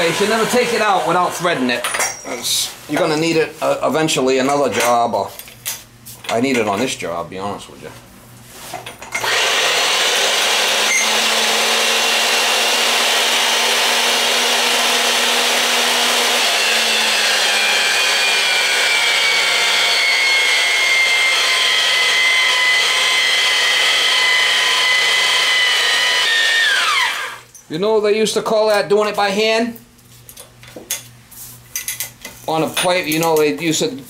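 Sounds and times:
die cutting metal pipe: 9.2 - 27.5
pipe-threading machine running: 9.2 - 27.5.

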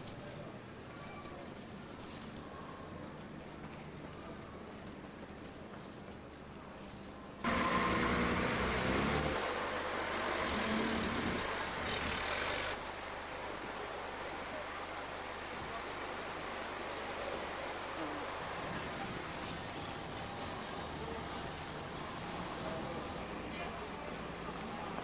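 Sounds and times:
tyre noise on road: 0.0 - 12.9
street ambience: 0.0 - 25.0
car engine passing: 7.4 - 12.8.

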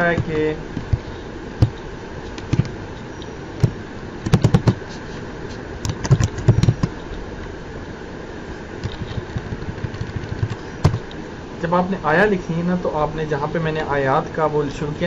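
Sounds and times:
steady background hum: 0.0 - 15.0
pen tapping on paper: 3.6 - 4.8, 8.8 - 11.0.

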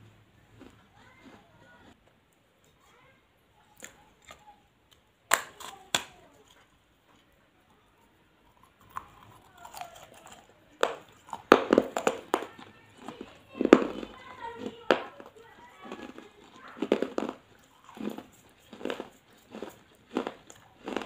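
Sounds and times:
teeth chewing clay pieces: 0.5 - 2.1, 3.6 - 7.2, 8.4 - 21.0
clay piece cracking: 3.8 - 6.6, 8.9 - 12.6.

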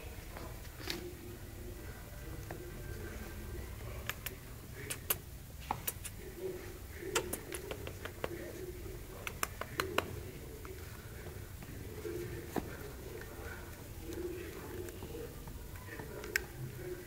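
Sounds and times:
puppy claws on tiled floor: 0.2 - 1.3, 3.8 - 6.2, 7.1 - 17.0.

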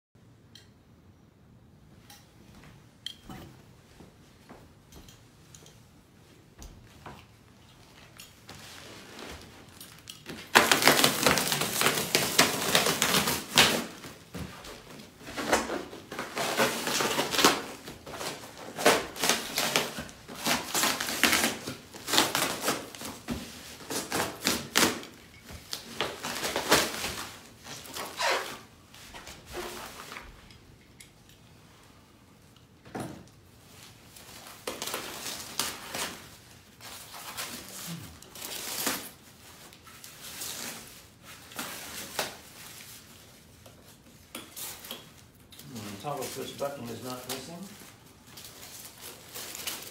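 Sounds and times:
foam packing rustling: 8.0 - 30.4, 33.6 - 49.9.

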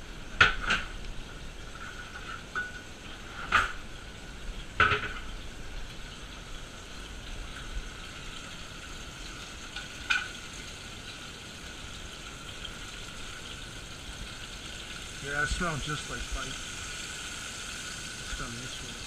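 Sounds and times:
fish fillets sizzling in a pan: 0.0 - 19.0
pan or utensil knocking: 4.8 - 5.3.

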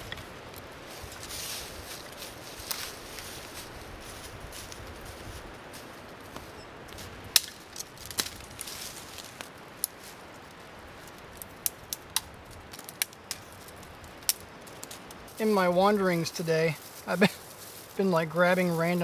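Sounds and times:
faint steady hiss: 0.0 - 19.0
kindling snapping and clicking: 11.6 - 13.5.

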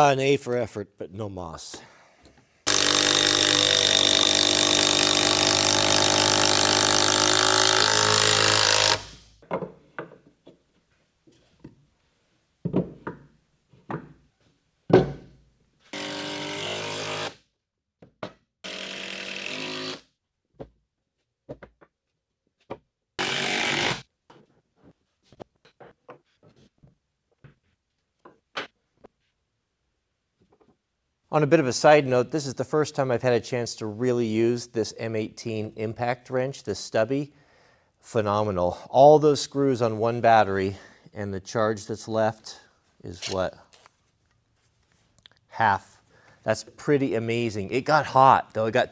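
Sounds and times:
impact wrench hammering: 2.7 - 9.2.

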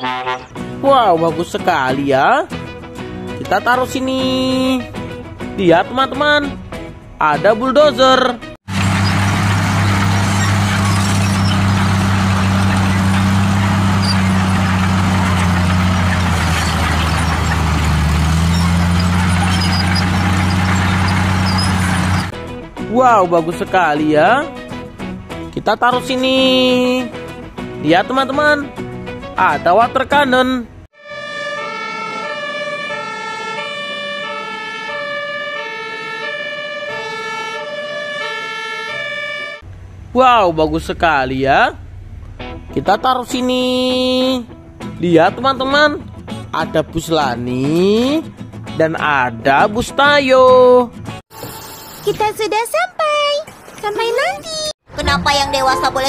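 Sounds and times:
bulldozer diesel engine under load: 8.6 - 22.4
two-tone fire truck siren: 31.0 - 39.7.

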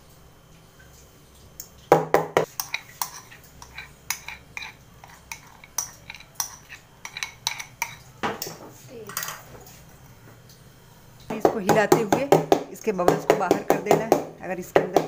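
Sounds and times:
spoon clanking against metal bowl: 2.4 - 9.4.

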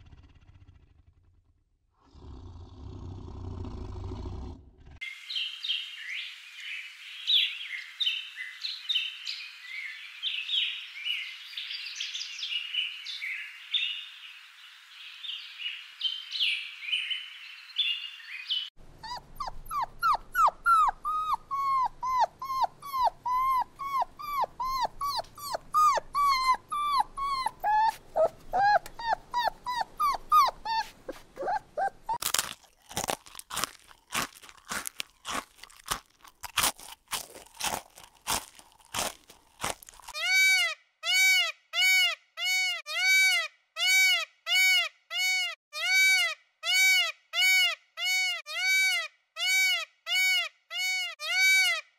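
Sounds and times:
songbirds chirping: 5.0 - 18.8
puppies whimpering: 19.0 - 32.2
hamster crunching carrot: 32.2 - 40.2.

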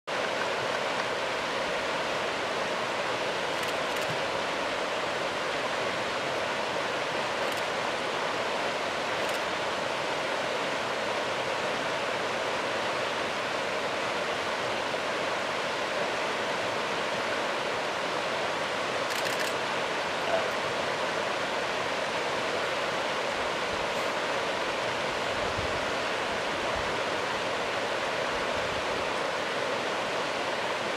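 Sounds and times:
river rushing: 0.1 - 30.9.

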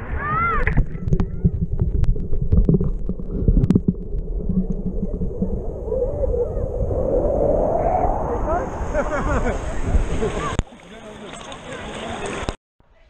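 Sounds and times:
water splashing against camera: 0.0 - 6.9, 9.4 - 12.6
low rumble: 0.0 - 10.5
sharp water clicks: 0.6 - 4.9, 10.5 - 12.6
background voices: 0.6 - 12.6.

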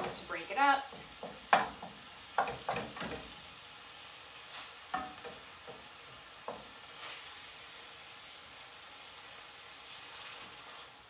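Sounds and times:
meat sizzling in a skillet: 0.0 - 11.0
wooden spoon scraping a pan: 4.4 - 7.4.

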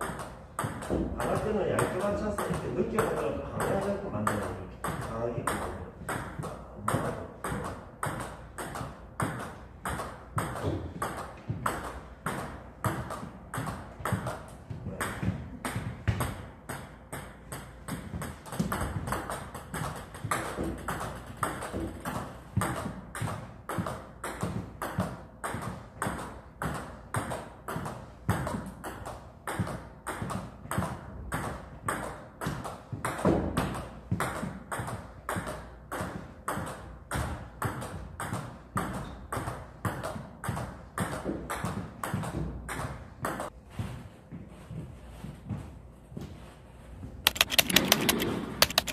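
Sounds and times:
table tennis ball clicks: 47.3 - 48.9.

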